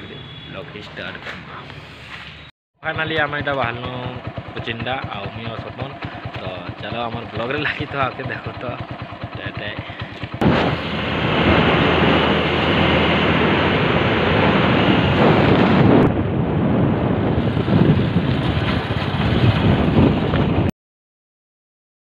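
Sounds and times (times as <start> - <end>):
motorcycle running: 2.9 - 20.7
wind buffeting microphone: 10.3 - 20.7.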